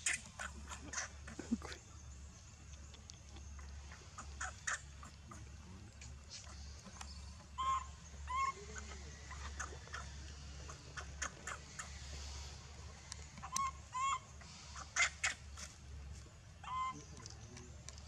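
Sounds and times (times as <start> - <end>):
high-pitched animal calls: 0.0 - 1.8, 3.5 - 5.5, 7.5 - 12.1, 13.3 - 15.7, 16.6 - 17.3.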